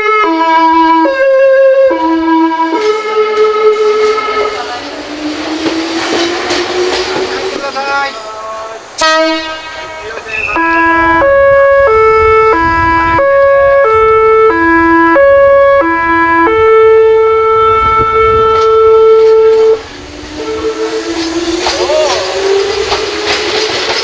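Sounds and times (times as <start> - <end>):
train music horn tune: 0.0 - 4.8, 9.0 - 23.1
train whine: 0.0 - 24.0.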